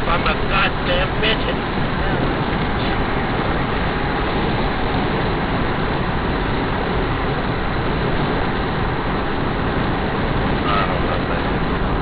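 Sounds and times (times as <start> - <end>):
road and wind noise in car cabin: 0.0 - 12.0.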